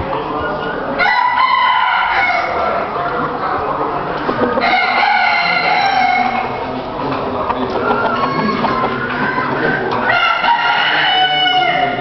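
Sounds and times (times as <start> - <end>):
roosters crowing: 1.0 - 2.9, 4.5 - 6.7, 7.7 - 12.0.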